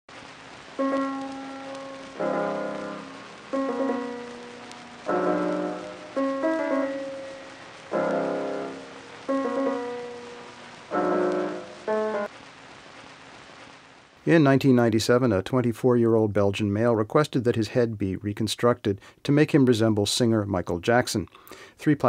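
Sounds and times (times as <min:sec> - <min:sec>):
slow piano chords: 0:00.8 - 0:12.3.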